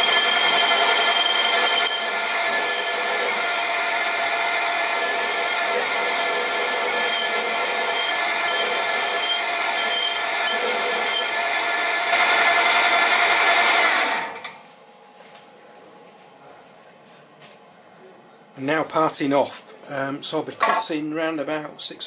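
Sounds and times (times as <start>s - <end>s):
tool cutting steel: 0.0s - 14.4s
lathe whining: 0.0s - 14.5s.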